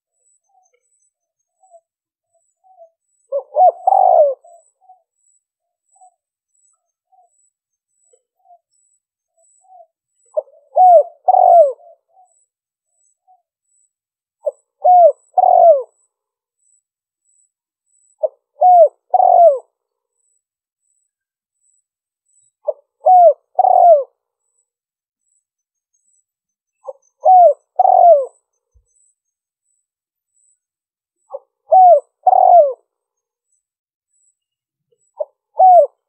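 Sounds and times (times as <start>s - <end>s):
faint soft bird notes: 0.0s - 15.7s
dove cooing: 2.6s - 5.1s, 9.6s - 12.3s, 14.4s - 16.0s, 18.2s - 19.7s, 22.6s - 24.2s, 26.8s - 28.4s, 31.3s - 32.9s, 35.2s - 36.0s.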